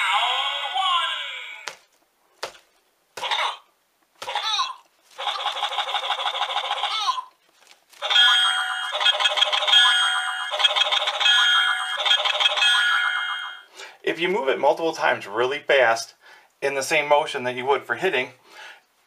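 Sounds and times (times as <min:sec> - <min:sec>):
toy electronic sound effects: 0:04.2 - 0:07.3, 0:08.0 - 0:13.7.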